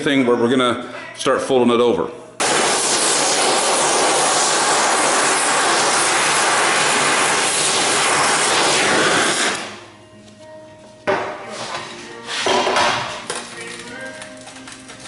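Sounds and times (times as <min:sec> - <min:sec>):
torch flame hissing: 0:02.4 - 0:09.8.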